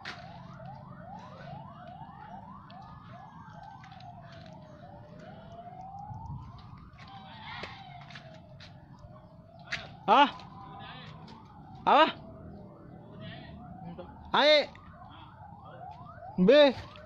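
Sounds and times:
siren wail: 0.0 - 17.0
siren yelp: 0.0 - 17.0.

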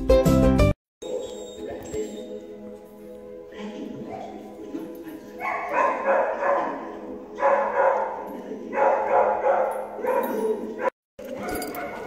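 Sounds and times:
dogs barking: 1.0 - 1.8, 4.0 - 12.0.

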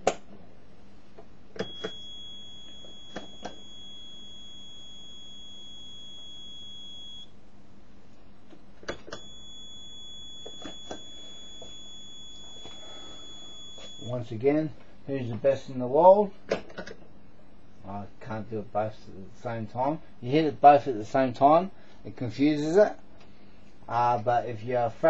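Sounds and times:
high-pitched electronic beep: 1.6 - 7.3, 9.1 - 14.2.

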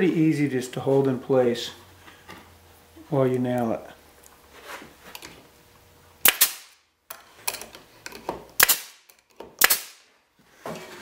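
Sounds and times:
nail gun shots: 6.2 - 6.8, 8.6 - 10.0.

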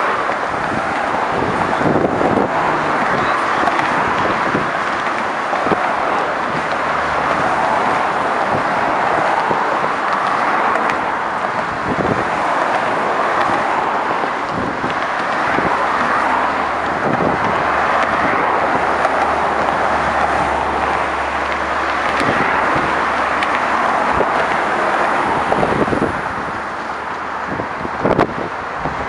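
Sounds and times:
cars and trucks passing: 0.0 - 29.0.

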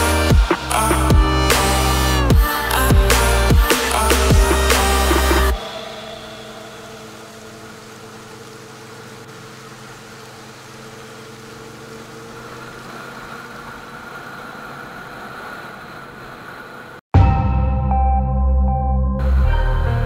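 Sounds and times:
loud music: 0.0 - 7.1, 17.2 - 20.0
motorcycle engine cruising: 0.0 - 17.0
wind and road noise: 0.0 - 17.0.

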